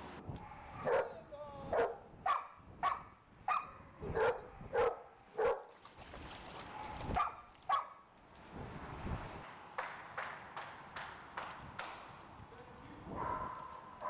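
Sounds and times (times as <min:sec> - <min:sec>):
dog barking: 0:00.5 - 0:05.7, 0:06.7 - 0:08.0, 0:13.2 - 0:14.0.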